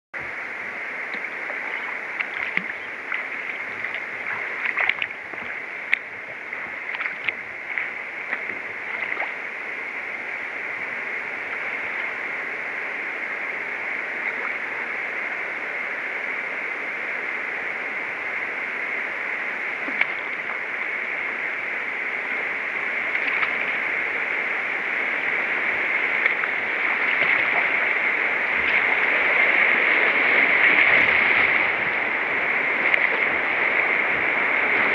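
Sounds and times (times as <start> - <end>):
river rapid rushing: 0.2 - 34.9
light splashes and drips: 1.1 - 9.4, 23.1 - 23.8, 26.2 - 28.0, 32.8 - 33.9.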